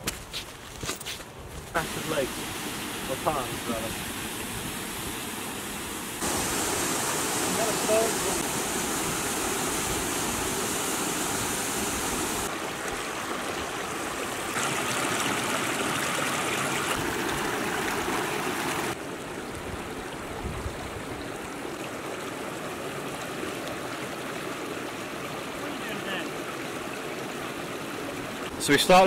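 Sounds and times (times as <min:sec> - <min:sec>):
stream rushing over rocks: 0:01.8 - 0:29.0.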